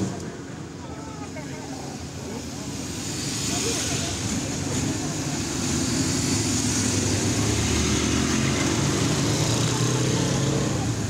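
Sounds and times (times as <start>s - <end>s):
motorcycle engines passing: 2.8s - 11.0s.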